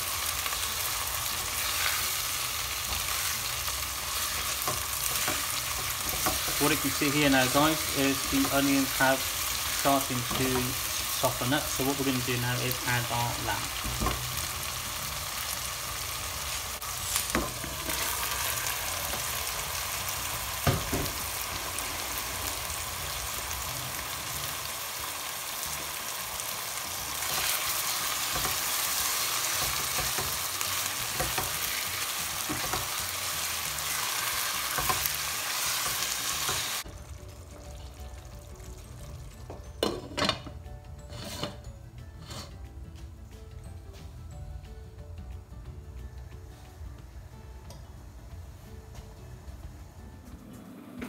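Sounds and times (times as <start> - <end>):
food sizzling in hot oil: 0.0 - 39.4.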